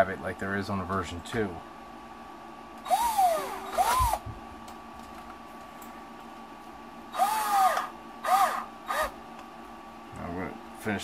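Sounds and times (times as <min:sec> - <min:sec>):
cordless drill whining: 0:02.8 - 0:04.2, 0:07.1 - 0:09.2.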